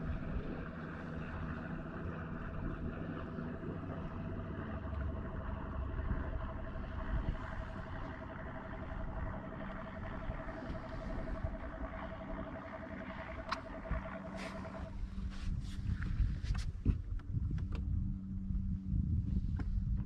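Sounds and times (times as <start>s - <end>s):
boat motor humming: 0.0s - 20.0s
wind on microphone: 5.8s - 20.0s.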